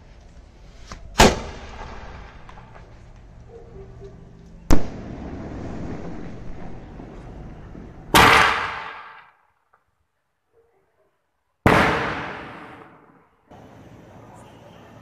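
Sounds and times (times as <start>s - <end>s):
firework crackling: 0.4s - 3.4s, 4.7s - 9.3s
firework bangs: 0.8s - 3.3s, 4.7s - 9.4s, 11.6s - 13.2s.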